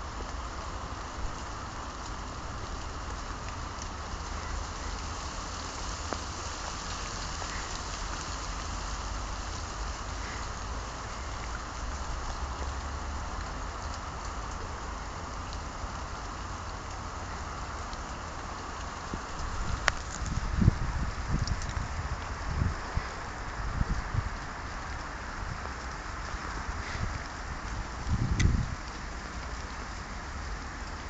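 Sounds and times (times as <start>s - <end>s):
wet snow falling hiss: 0.0s - 31.0s
faint ticks: 21.4s - 31.0s.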